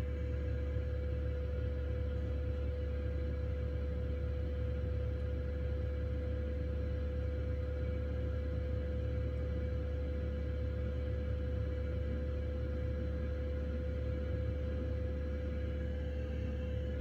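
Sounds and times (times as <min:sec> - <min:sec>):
heater low rumble: 0:00.0 - 0:05.6, 0:09.2 - 0:17.0
constant hum: 0:00.0 - 0:17.0.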